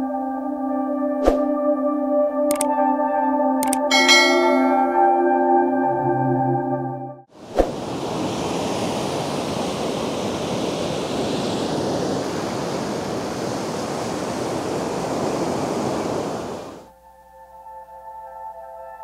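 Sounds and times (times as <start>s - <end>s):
ocean surf breaking on beach: 7.4s - 16.9s.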